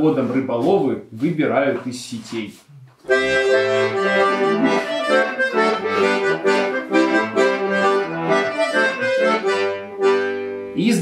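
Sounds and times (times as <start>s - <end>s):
accordion dance tune: 3.0s - 11.0s.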